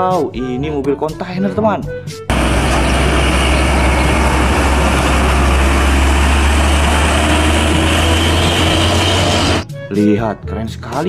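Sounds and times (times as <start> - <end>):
constant rushing noise: 2.3 - 9.6
truck diesel engine drone: 2.3 - 9.6.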